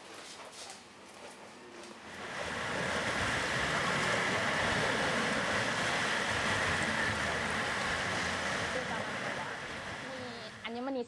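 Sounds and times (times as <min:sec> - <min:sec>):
ocean surf rushing: 0:02.0 - 0:10.8.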